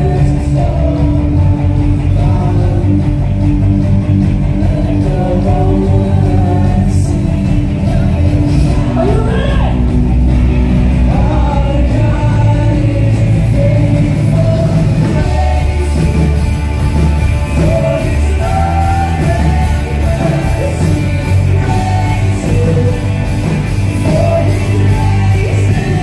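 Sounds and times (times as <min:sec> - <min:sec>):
lead vocal singing: 0:00.0 - 0:10.0, 0:10.7 - 0:26.0
live rock band playing: 0:00.0 - 0:26.0
backing voices singing: 0:10.8 - 0:26.0.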